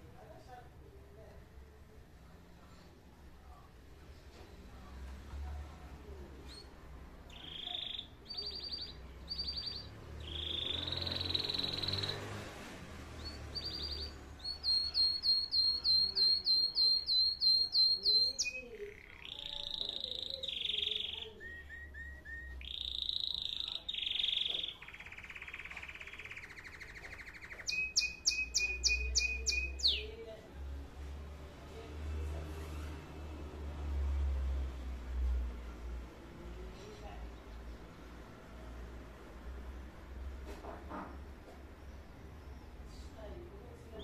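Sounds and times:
canary singing trills: 6.4s - 12.4s, 13.1s - 30.3s.

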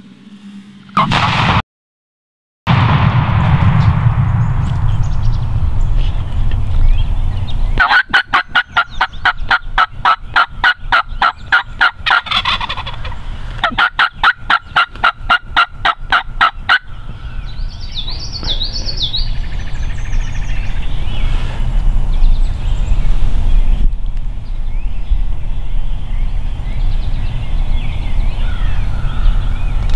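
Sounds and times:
songbird singing: 4.3s - 29.9s
turkey clucking rapidly: 7.8s - 16.9s.

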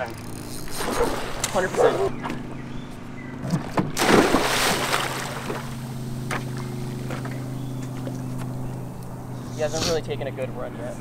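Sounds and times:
low motor hum: 0.0s - 11.0s
water splashing from wading: 3.6s - 7.1s.

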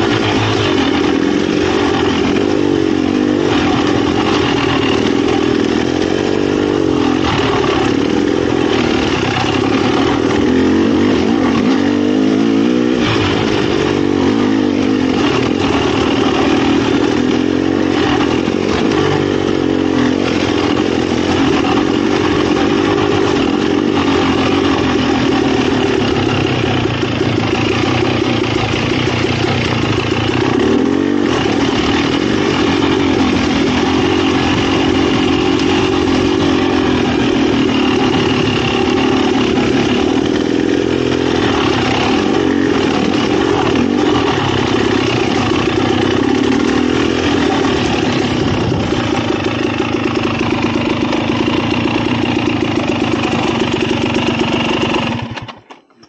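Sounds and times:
dirt bike engine revving: 0.0s - 55.8s.

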